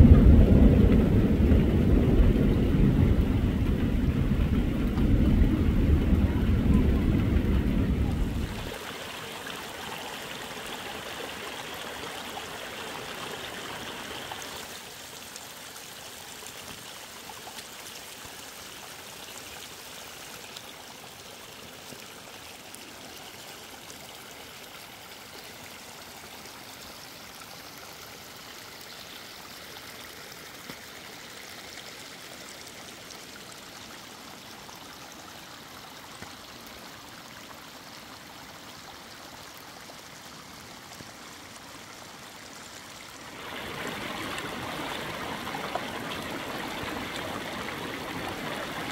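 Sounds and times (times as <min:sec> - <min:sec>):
loud low rumble: 0:00.0 - 0:08.7
water flowing over stones: 0:00.0 - 0:48.9.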